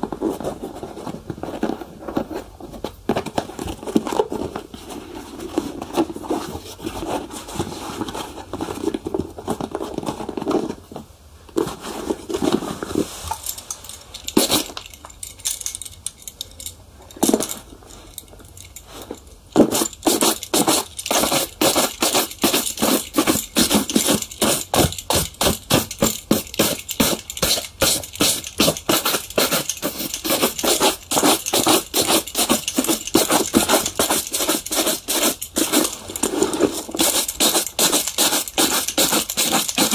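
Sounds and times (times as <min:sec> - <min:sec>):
brush rubbing leather shoe: 0:19.7 - 0:36.0, 0:36.6 - 0:39.9.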